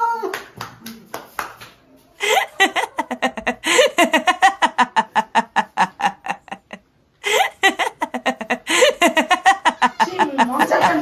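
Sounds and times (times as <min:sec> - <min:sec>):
person laughing hard: 0:02.2 - 0:11.0.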